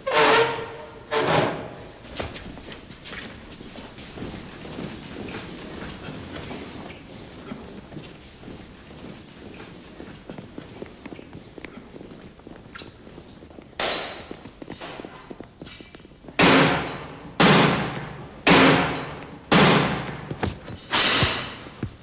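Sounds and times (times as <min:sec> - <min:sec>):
heavy crashes and thuds: 0:16.4 - 0:22.0.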